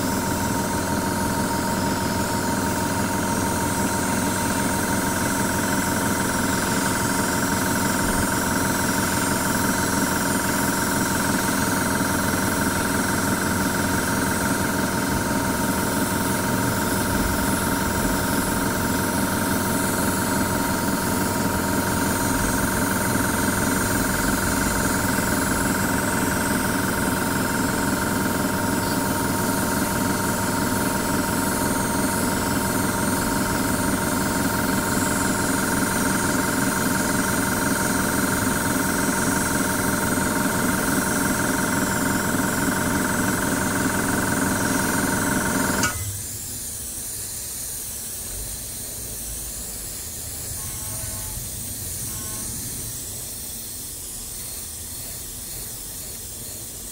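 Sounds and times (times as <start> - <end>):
airbrush spraying hiss: 0.0 - 5.8, 27.2 - 35.3, 46.4 - 56.9
airbrush compressor humming: 0.0 - 56.9.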